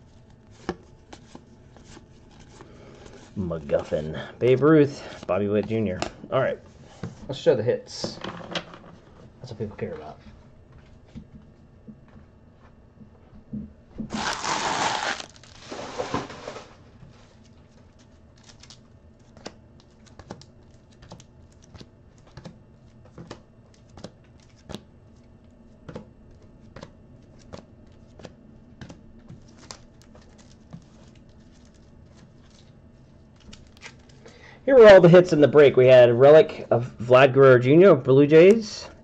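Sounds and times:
foil wrappers crumpling: 14.1 - 22.3, 29.3 - 34.4.

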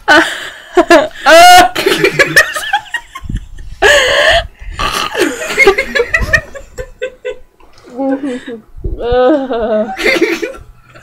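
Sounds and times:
girl gagging and retching: 4.7 - 5.6.

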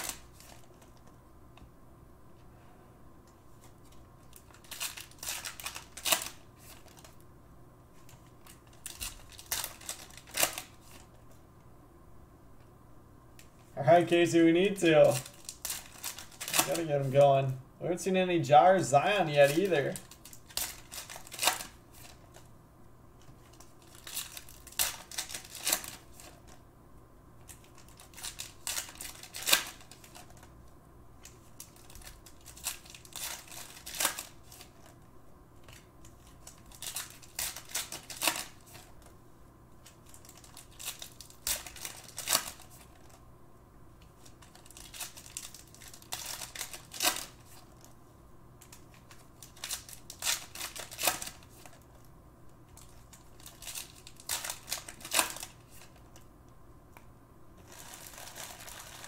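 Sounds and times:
wrappers tearing and crinkling: 0.0 - 0.9, 4.3 - 7.2, 8.0 - 11.1, 14.3 - 17.2, 19.1 - 22.5, 23.4 - 26.6, 27.4 - 30.5, 31.2 - 35.0, 35.6 - 39.1, 39.8 - 43.2, 44.1 - 48.0, 48.6 - 52.1, 52.8 - 56.2, 57.6 - 59.0
cards rustling: 0.0 - 1.2, 3.5 - 7.2, 7.9 - 11.4, 13.4 - 22.5, 23.2 - 26.6, 27.4 - 30.5, 31.2 - 35.0, 35.6 - 39.2, 39.8 - 43.2, 44.0 - 48.0, 48.6 - 52.1, 52.7 - 56.3, 57.6 - 59.0.

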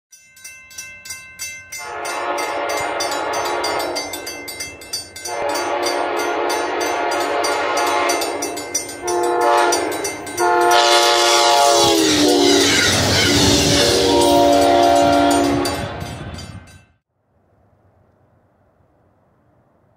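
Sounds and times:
crossing bell dinging: 0.1 - 17.0
passing train rumble: 1.7 - 17.0
locomotive horn blasts: 1.8 - 4.2, 5.2 - 16.1.

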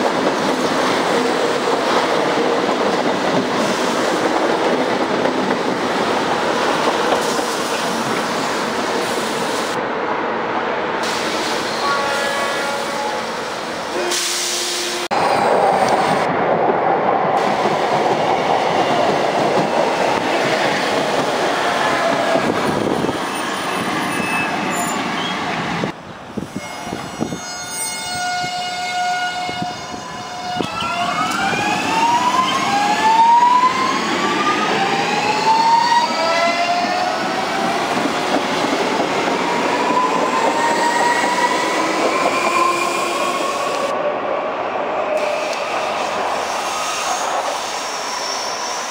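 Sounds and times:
train wheels rumbling on rails: 0.0 - 9.8, 14.1 - 28.7, 29.5 - 44.1.

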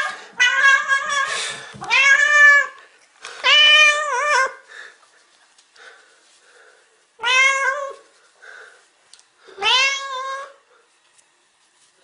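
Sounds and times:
cat meowing: 0.0 - 2.8, 7.2 - 8.0, 9.6 - 10.6.

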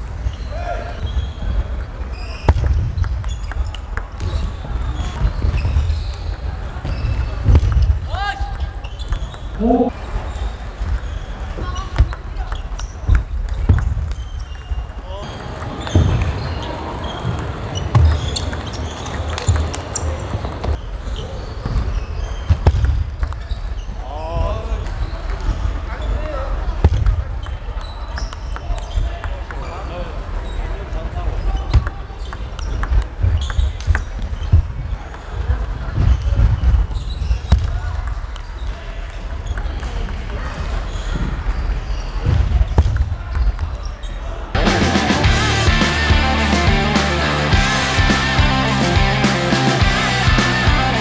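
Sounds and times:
sports hall rumble: 0.0 - 51.0
murmur of voices: 3.6 - 13.7, 23.9 - 51.0.

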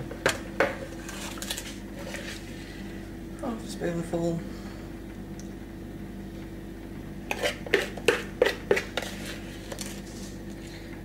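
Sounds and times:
metal spoon scraping mixing bowl: 7.3 - 10.3.

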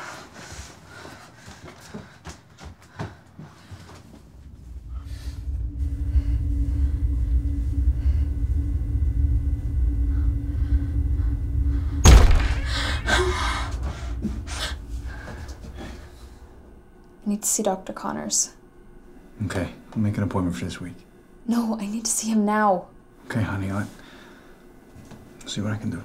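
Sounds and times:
low rumbling horror drone: 4.0 - 26.0
sudden loud hit: 10.5 - 16.4.

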